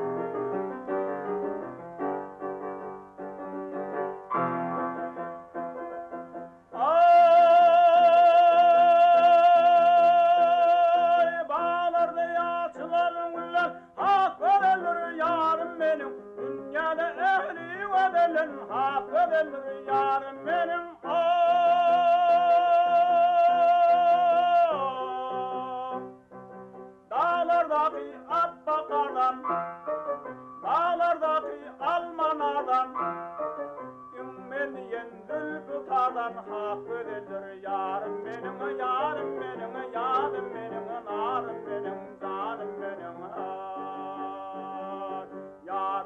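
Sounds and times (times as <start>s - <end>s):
instrumental accompaniment: 0.0s - 6.8s, 27.9s - 37.1s
man singing long held notes: 6.8s - 26.1s, 27.1s - 29.6s, 30.6s - 33.2s, 34.2s - 46.0s.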